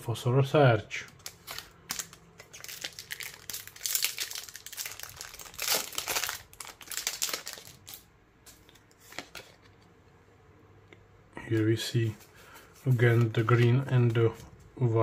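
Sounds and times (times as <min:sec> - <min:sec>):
foil wrapper crinkling: 0:01.1 - 0:08.1.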